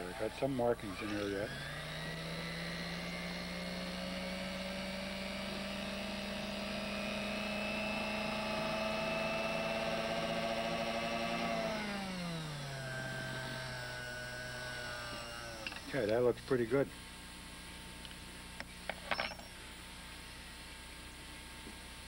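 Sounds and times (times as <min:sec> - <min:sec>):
lathe motor whining: 0:00.0 - 0:16.7.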